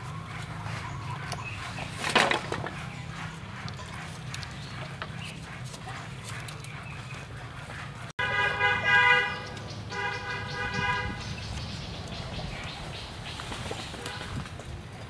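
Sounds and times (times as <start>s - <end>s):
bamboo slats tapping: 2.0s - 2.8s
horn honks: 8.2s - 11.4s.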